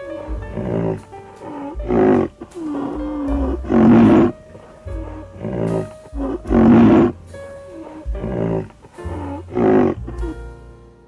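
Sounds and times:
deep animal calls: 0:00.0 - 0:10.4
background music: 0:00.0 - 0:11.0.

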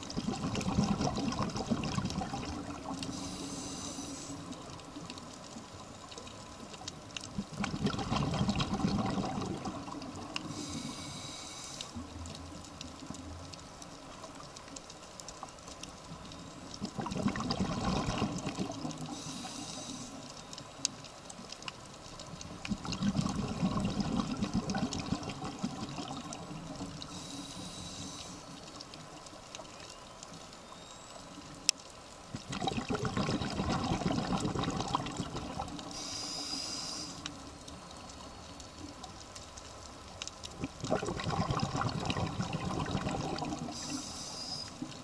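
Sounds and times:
exhaled bubbles underwater: 0:00.0 - 0:05.3, 0:07.3 - 0:11.2, 0:16.7 - 0:20.1, 0:22.3 - 0:28.3, 0:32.3 - 0:37.1, 0:40.4 - 0:45.0
regulator inhalation hiss: 0:03.1 - 0:04.5, 0:10.5 - 0:12.0, 0:19.1 - 0:20.3, 0:27.1 - 0:28.6, 0:35.9 - 0:37.3, 0:43.7 - 0:44.9.

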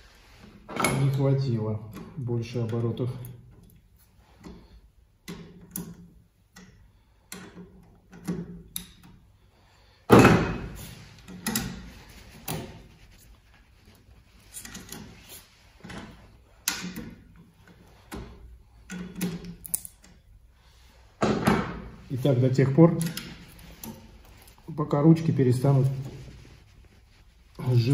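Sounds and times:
rivet tool clicking and clunking: 0:01.9 - 0:09.3, 0:11.2 - 0:11.9, 0:14.5 - 0:20.3.

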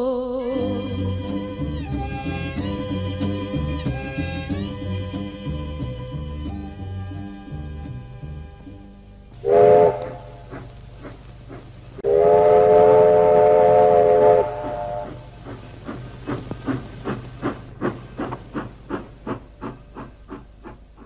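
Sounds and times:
steam locomotive chuffing: 0:00.6 - 0:07.0, 0:09.4 - 0:21.0
steam locomotive whistle: 0:09.4 - 0:10.5, 0:12.0 - 0:15.4.

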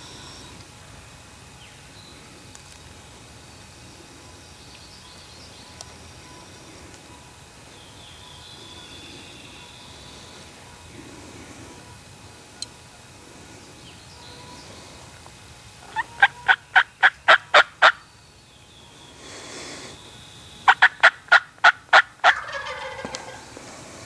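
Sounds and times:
wild turkey calling: 0:15.8 - 0:18.0, 0:20.6 - 0:23.6.

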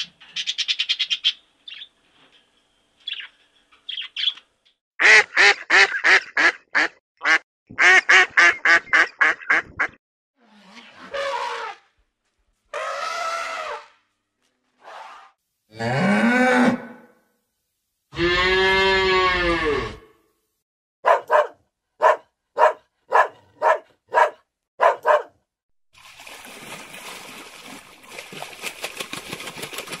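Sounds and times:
dog barking: 0:21.0 - 0:25.4.

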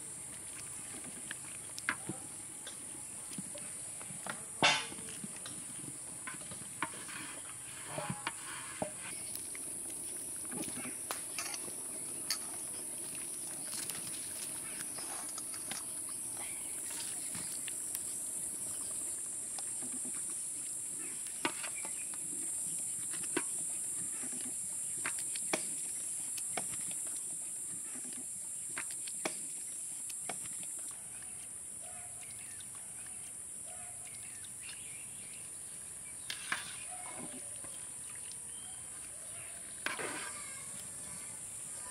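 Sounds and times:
rice boiling in a pot: 0:00.0 - 0:33.4.

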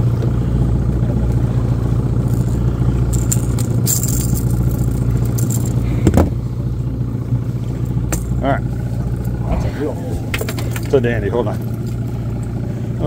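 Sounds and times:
outboard motor humming: 0:00.0 - 0:13.0
metal hooks clinking and rattling: 0:02.3 - 0:05.8.

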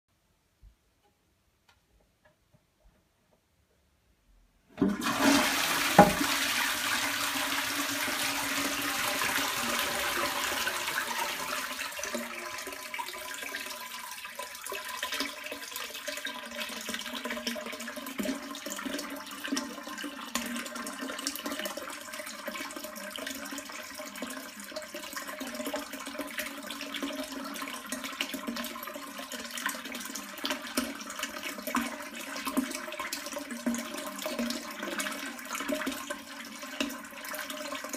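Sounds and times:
toilet flushing: 0:04.7 - 0:37.9
sharp knock: 0:06.0 - 0:06.2.

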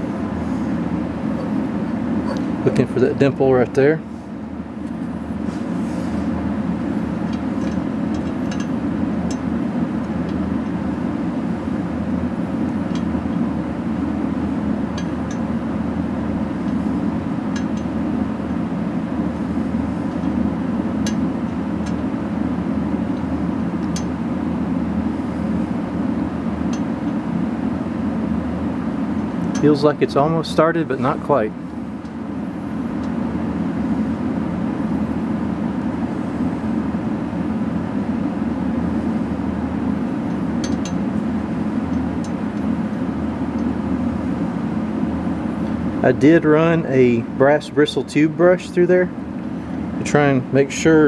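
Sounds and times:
machinery drone: 0:00.0 - 0:51.0.

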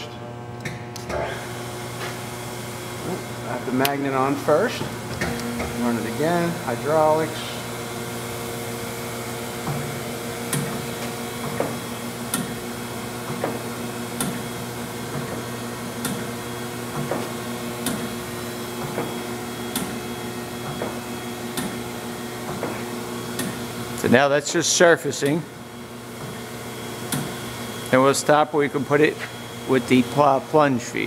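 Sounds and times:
grinder hum: 0:01.3 - 0:24.2.

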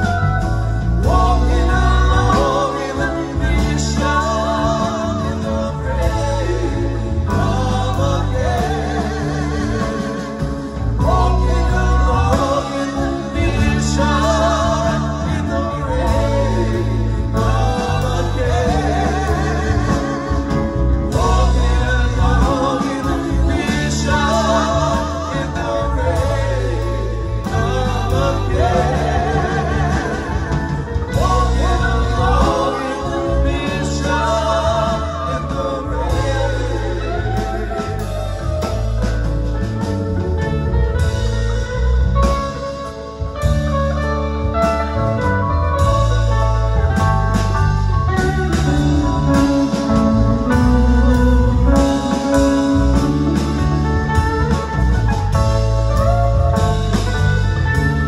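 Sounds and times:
woman singing with vibrato: 0:00.0 - 0:38.8
drums: 0:00.0 - 0:58.0
electric guitar: 0:00.0 - 0:58.0
keyboards: 0:00.0 - 0:58.0.

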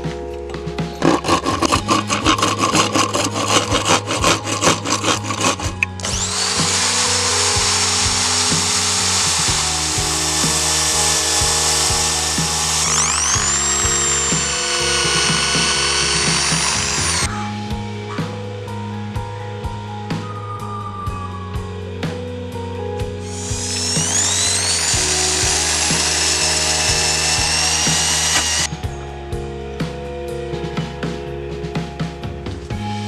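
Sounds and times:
electric drill boring into wood: 0:01.0 - 0:17.3, 0:23.2 - 0:28.7
hand saw cutting wood: 0:01.0 - 0:17.3, 0:23.2 - 0:28.7
sanding disc whining: 0:01.0 - 0:17.3, 0:23.2 - 0:28.7.

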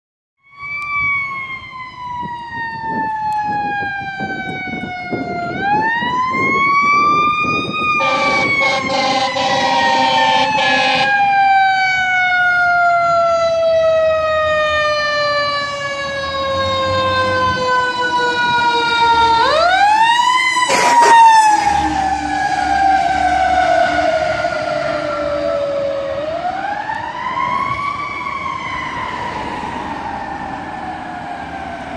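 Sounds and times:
fire engine siren wailing: 0:00.4 - 0:31.9
blaring horn: 0:07.9 - 0:11.4, 0:20.6 - 0:25.6.

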